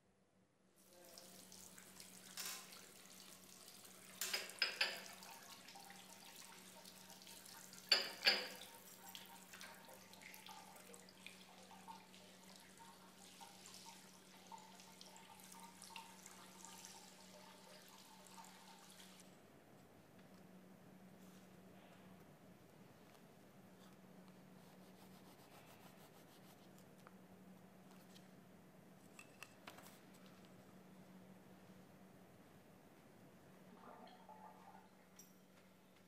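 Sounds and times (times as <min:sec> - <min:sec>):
tap water running into basin: 0:00.8 - 0:19.2.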